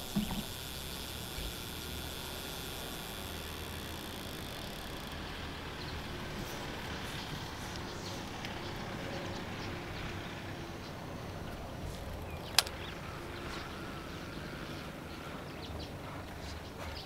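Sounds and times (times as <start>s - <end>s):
sharp click: 12.5s - 12.8s.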